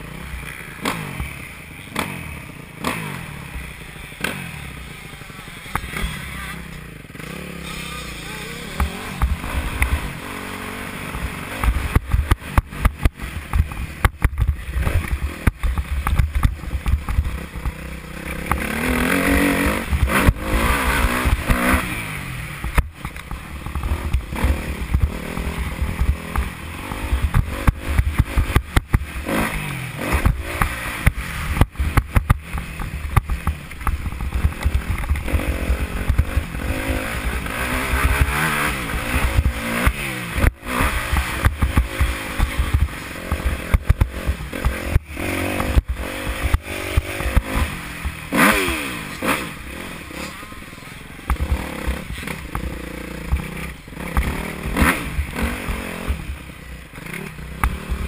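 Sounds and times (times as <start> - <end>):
motocross bike engine revving: 0.0 - 58.0.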